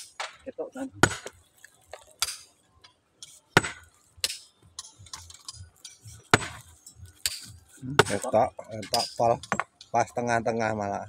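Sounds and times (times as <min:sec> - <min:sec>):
steel tool striking stone: 0:01.0 - 0:02.5, 0:03.2 - 0:09.9.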